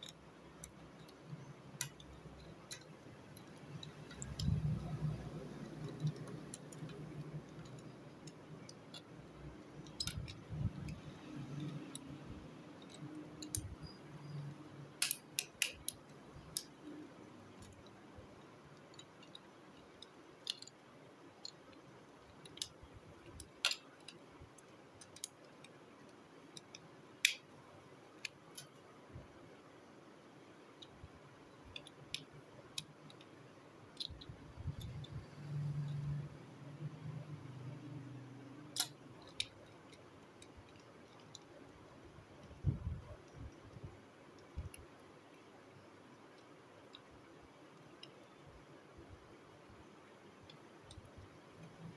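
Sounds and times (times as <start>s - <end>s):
plastic toy parts snapping: 9.8s - 12.0s, 15.0s - 16.7s, 22.4s - 24.2s, 38.7s - 41.5s.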